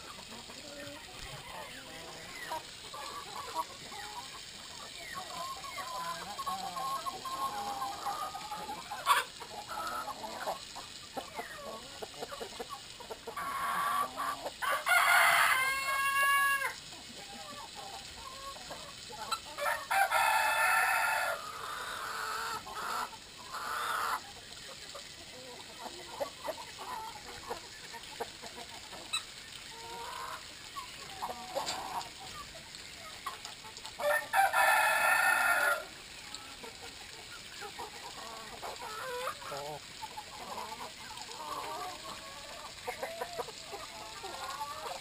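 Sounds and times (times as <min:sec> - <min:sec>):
chickens clucking: 0:00.0 - 0:45.0
rooster crowing: 0:34.0 - 0:35.9.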